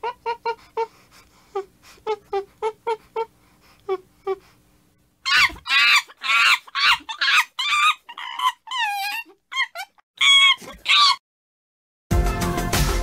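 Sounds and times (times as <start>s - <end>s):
chimpanzee hooting: 0.0s - 0.9s, 5.2s - 11.2s
chimpanzee screaming: 5.2s - 11.2s.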